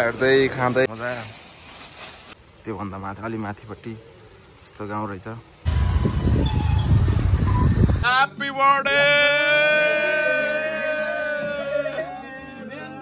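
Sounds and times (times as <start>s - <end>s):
man singing solo: 8.0s - 13.0s.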